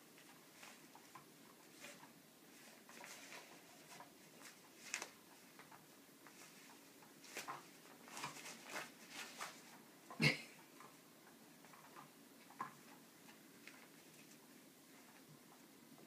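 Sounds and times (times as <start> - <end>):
cats scratching fabric: 0.0 - 15.6.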